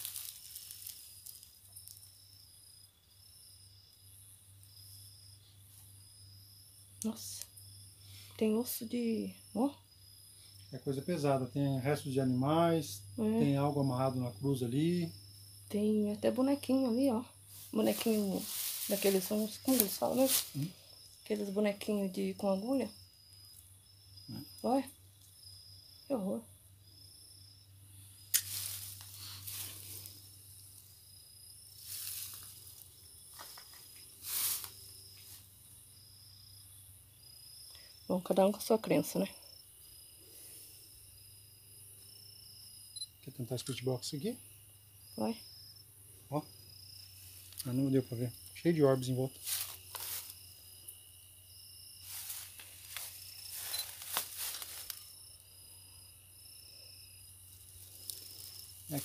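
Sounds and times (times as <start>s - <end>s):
dry grass rustling: 0.0s - 2.4s, 16.4s - 21.6s, 28.0s - 35.8s, 47.0s - 47.7s, 48.6s - 50.8s, 51.7s - 55.6s, 57.3s - 59.0s
crickets chirping: 0.0s - 59.0s
insects trilling: 0.0s - 59.0s.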